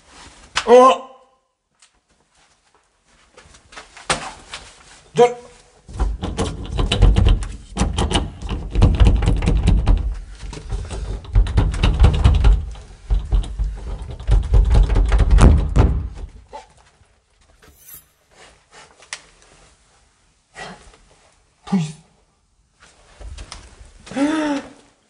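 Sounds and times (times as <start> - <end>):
door knocking in its frame: 6.0 - 10.2, 11.0 - 16.2.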